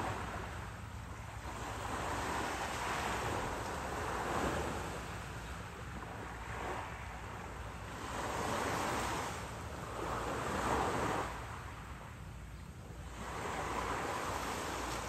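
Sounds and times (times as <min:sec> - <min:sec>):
small waves washing ashore: 0:00.0 - 0:15.0.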